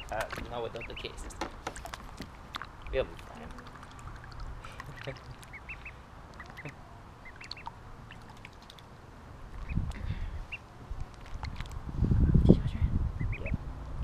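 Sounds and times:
ducklings peeping: 0.0 - 8.9, 9.5 - 11.8, 13.2 - 13.6
low rumble: 9.2 - 14.0.

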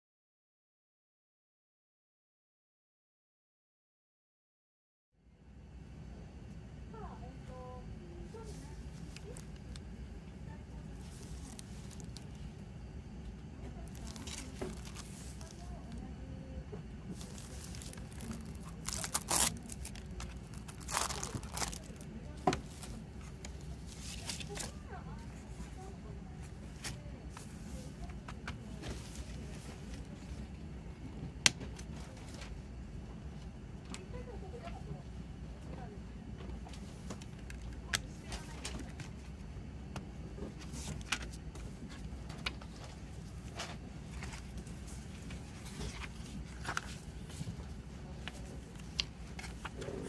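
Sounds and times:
steady low hum: 5.2 - 50.0
plastic crinkling: 8.4 - 9.9, 10.9 - 12.6, 13.8 - 16.1, 17.1 - 24.9
soft rustling: 10.8 - 12.5, 13.8 - 16.1, 17.0 - 30.4
plastic shrink-wrap tearing: 11.1 - 12.3, 13.8 - 15.6, 17.2 - 22.0.

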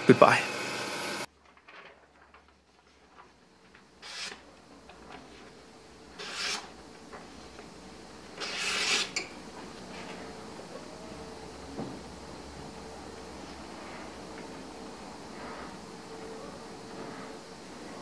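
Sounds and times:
blade slicing through paper: 4.0 - 4.4, 6.2 - 6.7.

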